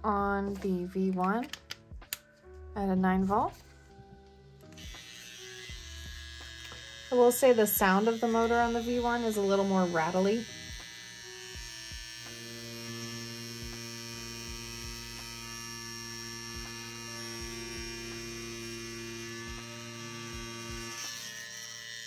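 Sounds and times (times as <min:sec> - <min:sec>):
tattoo machine motor humming: 0:04.4 - 0:22.0.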